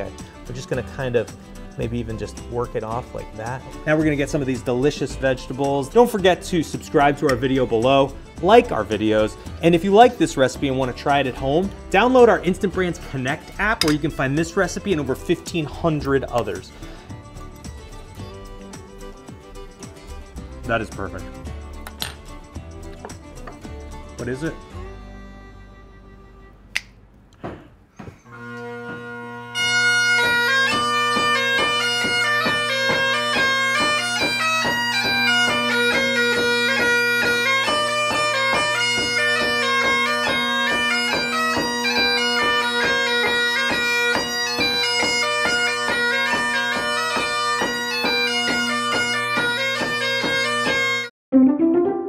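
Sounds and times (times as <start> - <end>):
bagpipes playing a tune: 28.3 - 51.1.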